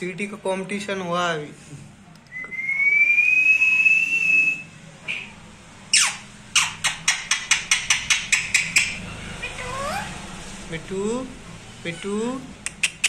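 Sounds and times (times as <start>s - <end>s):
rising whistle: 2.3s - 5.3s
parakeet harsh screeches: 5.9s - 10.3s.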